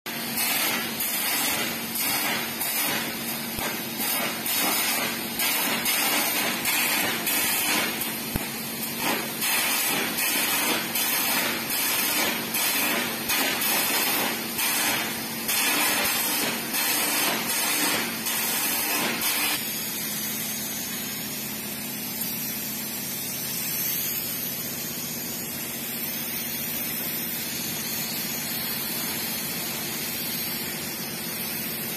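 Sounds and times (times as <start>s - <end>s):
compressed air hissing: 0.1s - 31.9s
electric arc crackling and sputtering: 0.4s - 19.6s.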